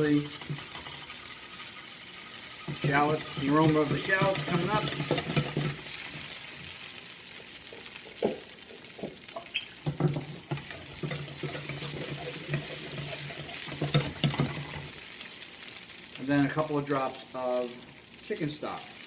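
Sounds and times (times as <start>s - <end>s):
food sizzling in butter: 0.0s - 19.0s
pan knocking on stove: 2.7s - 5.9s, 9.0s - 14.9s.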